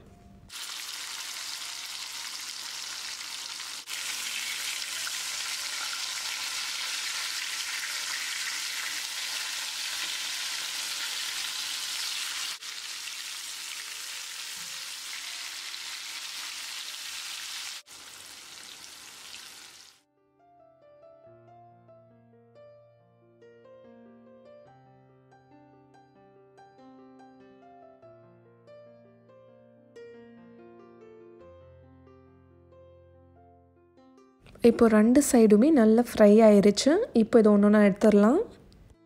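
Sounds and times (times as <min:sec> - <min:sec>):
fish sizzling in hot oil: 0:00.5 - 0:20.0.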